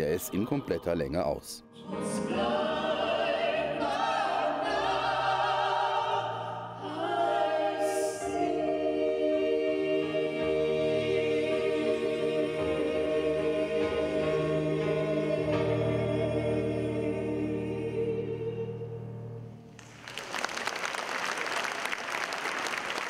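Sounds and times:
vocal group singing: 0.0 - 19.2
audience applause: 19.8 - 23.0.

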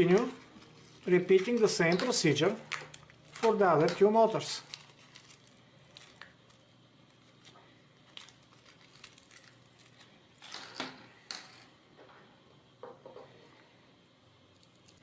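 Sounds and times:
small parts clicking and rattling: 7.4 - 11.6.

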